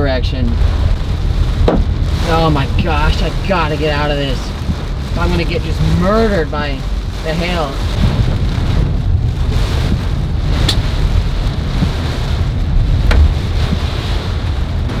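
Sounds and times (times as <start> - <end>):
rain and hail on a car: 0.0 - 15.0
wind buffeting rumble: 0.0 - 15.0
sharp knocks: 1.6 - 1.9.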